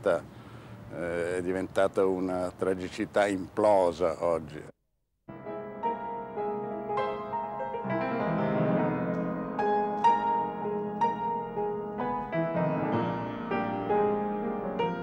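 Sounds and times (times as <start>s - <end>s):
gentle piano piece: 5.3s - 15.0s.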